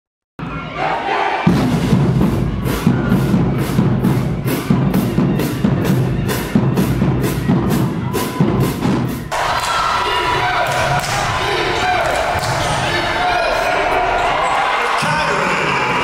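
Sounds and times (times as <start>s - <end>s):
driving drum beat: 1.5s - 9.6s.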